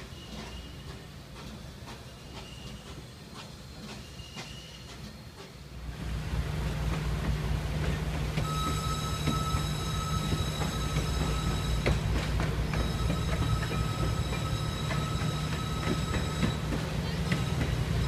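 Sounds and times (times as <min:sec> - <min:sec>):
train coaches rumbling: 0:00.0 - 0:18.0
high wheel squeal: 0:08.4 - 0:18.0.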